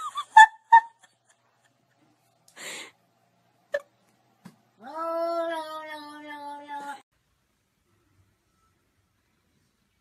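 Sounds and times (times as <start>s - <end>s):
cat yowling: 4.8s - 7.0s.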